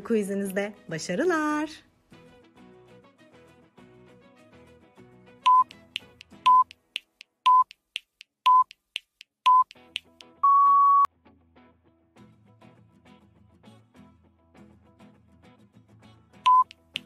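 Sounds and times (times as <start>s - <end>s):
soft background music: 0.0s - 6.7s, 12.2s - 17.0s
timer beeps: 5.5s - 6.7s, 7.5s - 7.7s, 8.5s - 8.7s, 9.5s - 9.7s, 10.4s - 11.1s, 16.5s - 16.8s.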